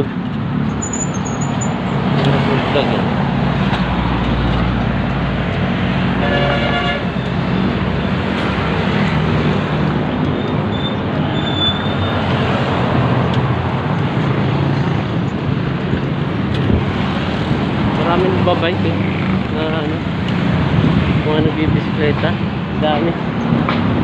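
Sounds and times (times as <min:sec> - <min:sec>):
road traffic passing: 0:00.0 - 0:24.0
vehicle horn toot: 0:06.2 - 0:07.1.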